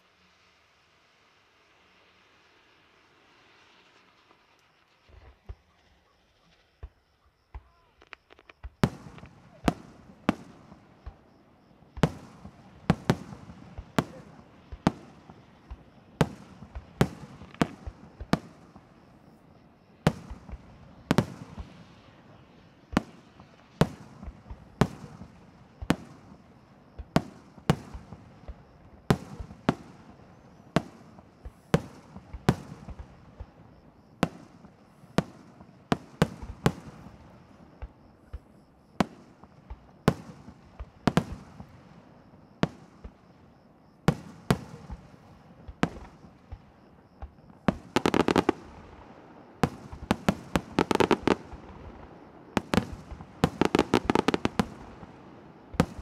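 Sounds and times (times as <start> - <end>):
fireworks crackling: 0.0 - 56.0
firework shells bursting: 45.7 - 55.1.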